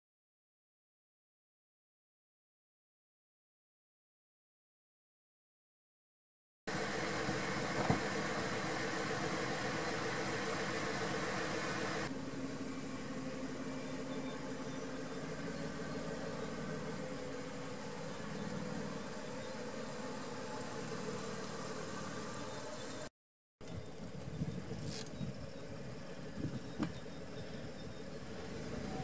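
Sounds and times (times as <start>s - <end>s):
car engine idling: 6.7s - 23.1s, 25.4s - 29.0s.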